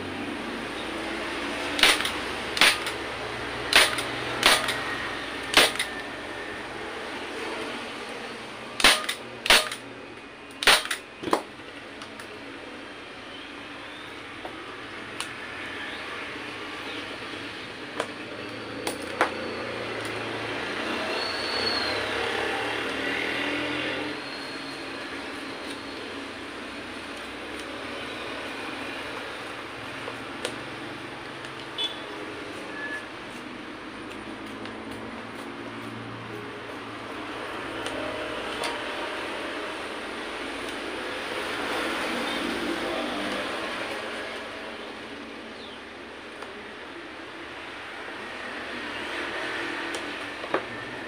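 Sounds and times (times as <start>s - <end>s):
staple gun clicks: 1.8s - 3.0s
staple gun snapping: 1.8s - 3.0s, 3.7s - 4.8s, 5.4s - 5.9s, 8.8s - 9.8s.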